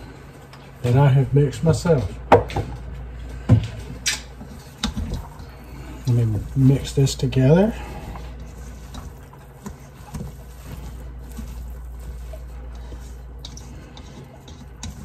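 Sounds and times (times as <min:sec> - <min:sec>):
spatula stirring and scraping: 0:00.0 - 0:15.0.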